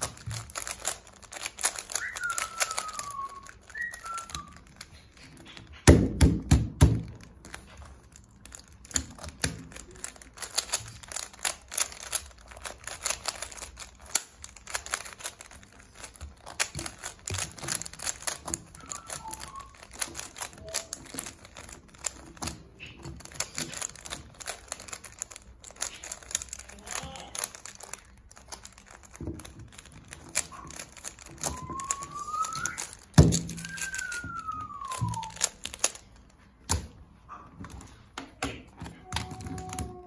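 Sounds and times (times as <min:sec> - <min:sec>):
plastic puzzle cube clicking: 0:00.0 - 0:37.0, 0:37.6 - 0:40.0
heavier plastic knocks: 0:05.8 - 0:07.3.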